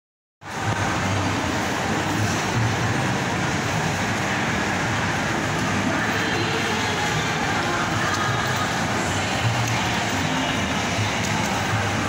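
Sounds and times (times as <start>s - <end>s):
echoing crowd hum indoors: 0.4s - 12.0s.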